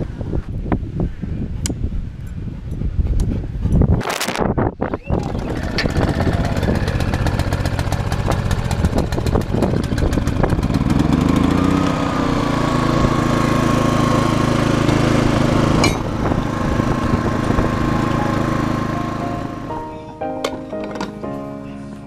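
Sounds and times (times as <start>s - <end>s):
small generator engine running: 5.1s - 19.8s.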